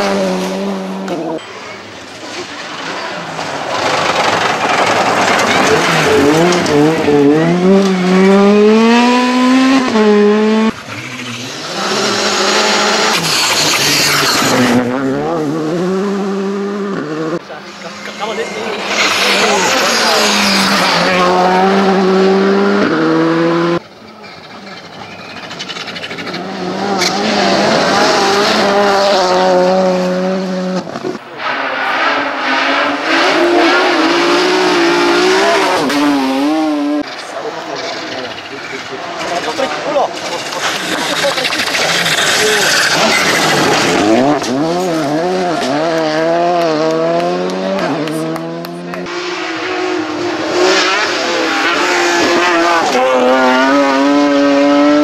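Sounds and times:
rally car engine at high revs: 0.0s - 1.5s, 2.2s - 23.8s, 24.7s - 55.0s
rally car passing on gravel: 0.0s - 12.3s.

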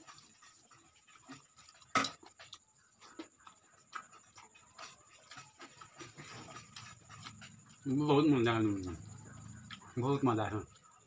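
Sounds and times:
fingers squishing food on steel plate: 0.0s - 11.0s
wet chewing and lip smacks: 0.0s - 11.0s.

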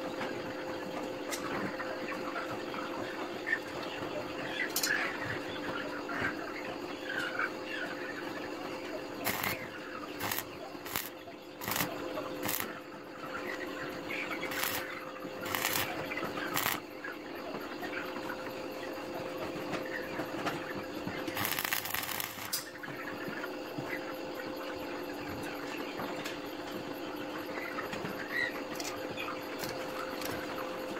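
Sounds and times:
steady hum: 8.5s - 25.2s
arc welding crackling hiss: 9.2s - 12.8s, 14.4s - 16.9s, 21.2s - 22.7s.

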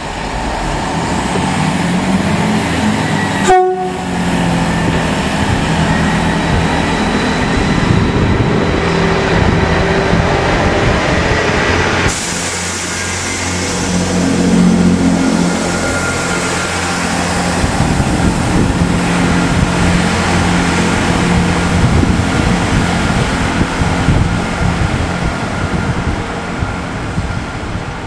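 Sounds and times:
diesel engine hum: 0.0s - 28.0s
train wheels on rails: 0.0s - 28.0s
wind buffeting microphone: 4.3s - 12.2s, 16.7s - 28.0s.

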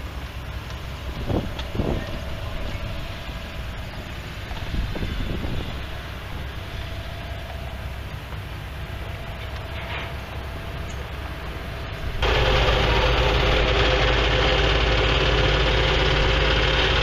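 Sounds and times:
distant tractor engines: 0.0s - 17.0s
wind rumble on microphone: 0.9s - 12.2s.

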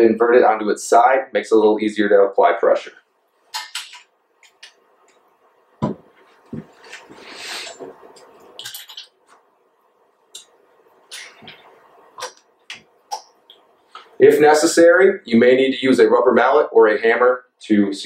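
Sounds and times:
heavy thump on tabletop: 5.8s - 6.7s.

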